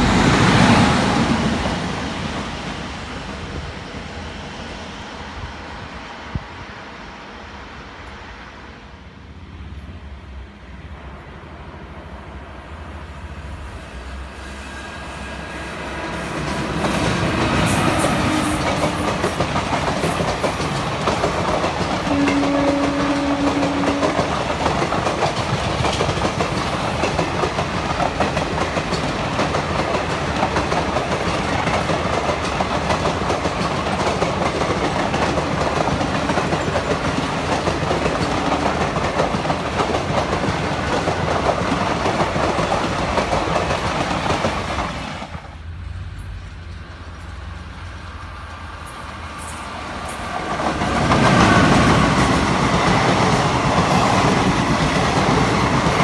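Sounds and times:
electric locomotive passing: 0.0 - 56.0
train wheels clickety-clack: 14.4 - 56.0.

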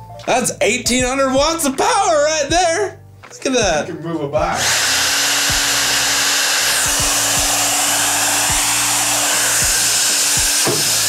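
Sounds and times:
hair dryer blowing air: 4.5 - 11.0
low motor hum: 4.6 - 11.0.

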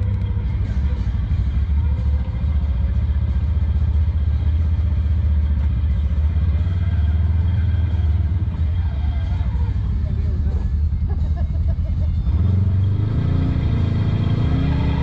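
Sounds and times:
vehicle engine low rumble: 0.0 - 15.0.

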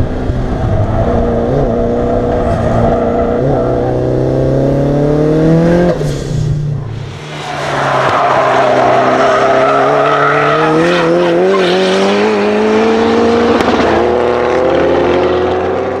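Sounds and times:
car engine revving under load: 0.0 - 16.0.

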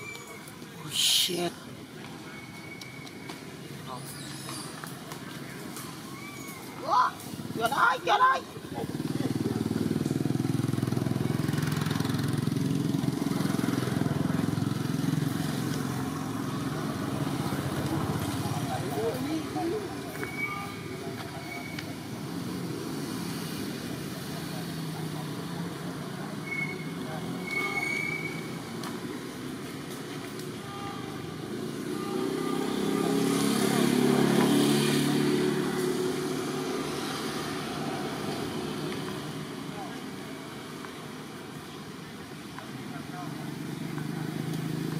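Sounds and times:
vehicle engine passing: 8.6 - 20.3, 31.4 - 40.2.

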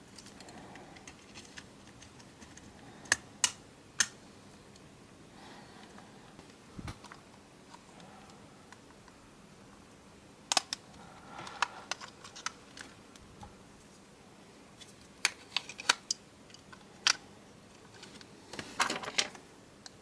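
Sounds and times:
plastic parts clicking and tapping: 14.8 - 20.0.

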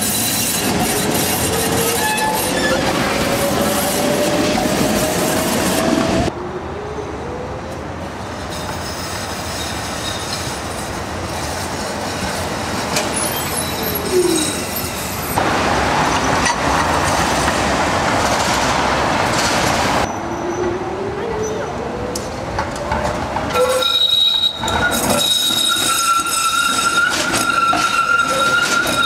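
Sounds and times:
tram wheel squeal: 0.0 - 6.3, 8.3 - 15.4, 19.4 - 21.8, 23.5 - 29.0
streetcar rolling rumble: 0.0 - 29.0.

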